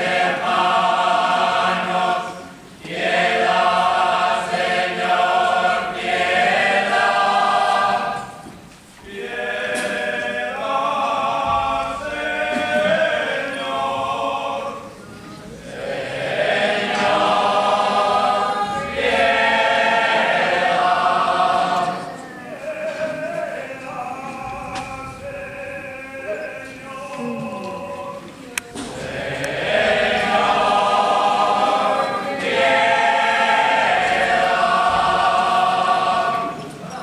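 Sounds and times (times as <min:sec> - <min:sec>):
men singing a cappella: 0:09.1 - 0:15.0, 0:15.6 - 0:37.0.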